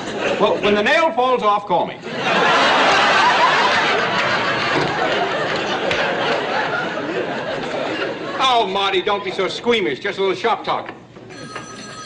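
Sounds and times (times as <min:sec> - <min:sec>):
studio audience laughing: 0:02.0 - 0:09.4.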